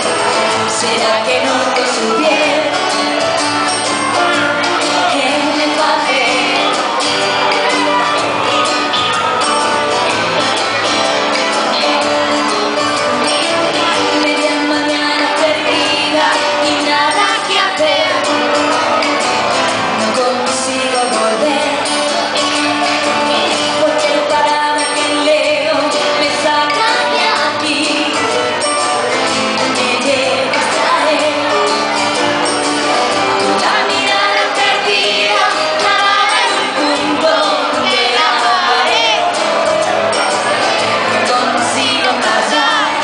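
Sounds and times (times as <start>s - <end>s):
woman singing into a microphone: 0.0s - 3.3s, 4.7s - 6.9s, 13.5s - 18.5s, 20.0s - 28.6s, 29.6s - 31.9s, 33.6s - 39.4s, 41.1s - 43.0s
band with guitars: 0.0s - 43.0s.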